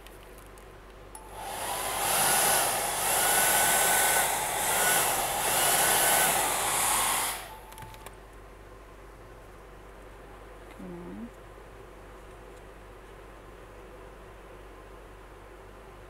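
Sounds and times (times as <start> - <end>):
hair dryer blowing: 1.2 - 7.7.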